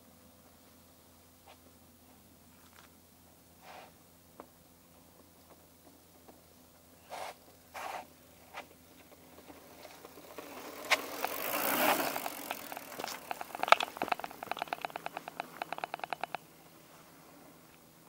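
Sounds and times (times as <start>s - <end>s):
bike tyres rolling on dirt: 4.9s - 18.0s
bike freehub ticking: 9.1s - 16.5s.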